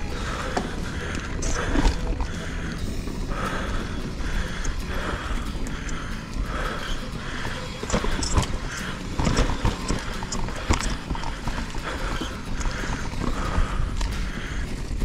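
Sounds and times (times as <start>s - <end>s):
low rumbling: 0.0s - 15.0s
mountain bike clattering on rocks: 4.5s - 14.2s.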